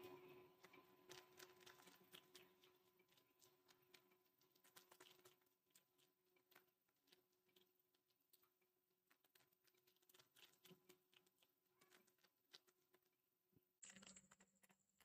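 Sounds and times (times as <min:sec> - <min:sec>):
faint steady hum: 0:00.0 - 0:05.0
fingertips patting batter: 0:00.6 - 0:13.2.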